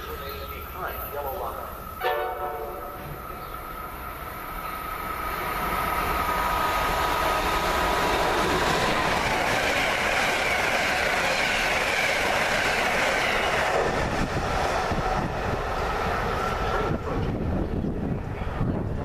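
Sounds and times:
train wheels clattering on rails: 7.4s - 18.3s.

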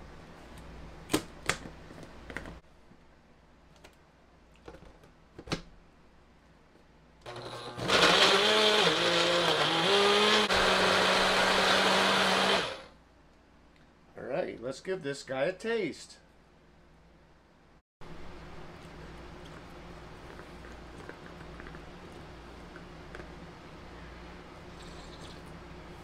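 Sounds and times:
blender motor running: 7.3s - 12.9s.

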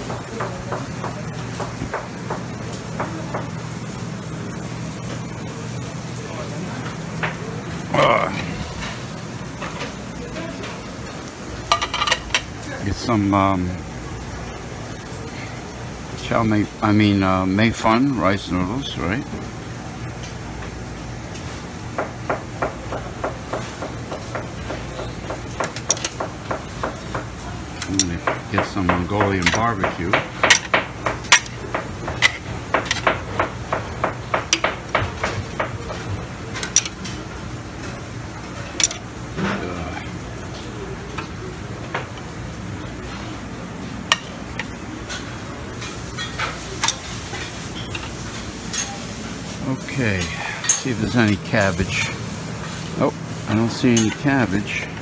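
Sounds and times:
background hiss and hum: 0.0s - 55.0s
metal tongs clinking on pans: 11.6s - 12.6s, 25.0s - 26.2s, 27.0s - 33.5s, 35.6s - 37.3s, 38.4s - 39.6s, 44.1s - 49.2s, 50.2s - 52.2s, 53.9s - 54.4s.

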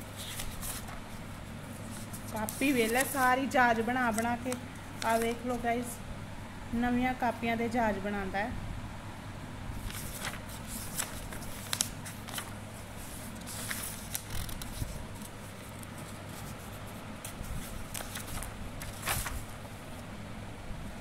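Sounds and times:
paper pages rustling and turning: 0.0s - 5.7s, 9.8s - 20.1s
low steady hum: 0.0s - 21.0s.

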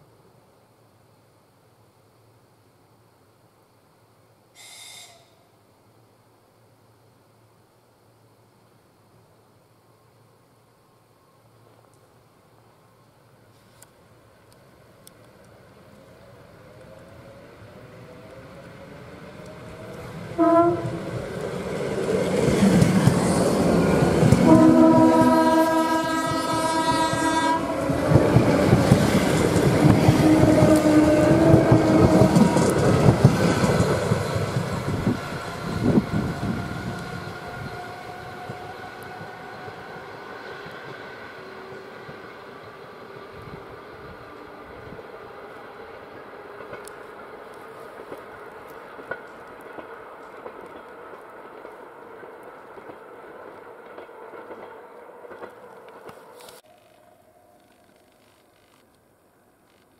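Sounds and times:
train horn: 4.6s - 5.5s, 20.3s - 21.2s, 24.3s - 28.5s, 30.0s - 33.2s
train rumbling past: 14.2s - 57.6s.

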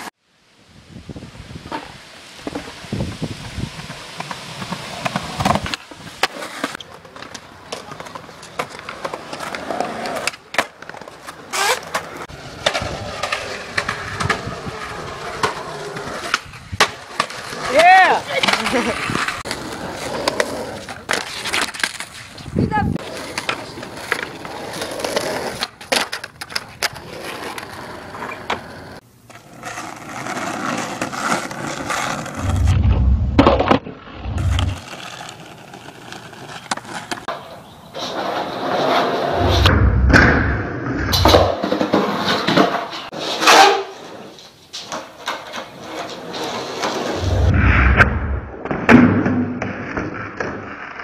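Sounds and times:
skateboard wheels rolling on concrete: 0.0s - 51.0s.

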